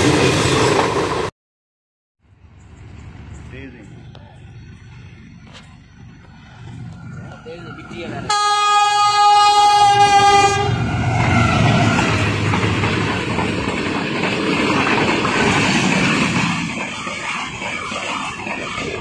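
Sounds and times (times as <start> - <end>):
train rumble and wheel clatter: 0.0 - 1.3, 2.5 - 19.0
train horn: 8.3 - 11.1.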